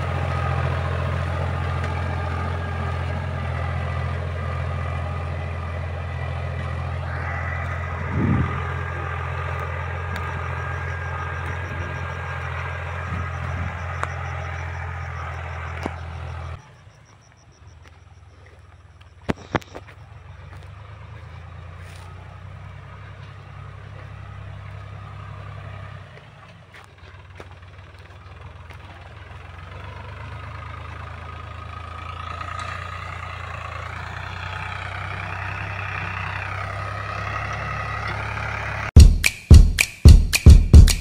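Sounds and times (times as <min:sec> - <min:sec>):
tractor diesel engine running: 0:00.0 - 0:41.0
high wavering whine: 0:06.6 - 0:18.0
loud drum-beat music: 0:39.0 - 0:41.0.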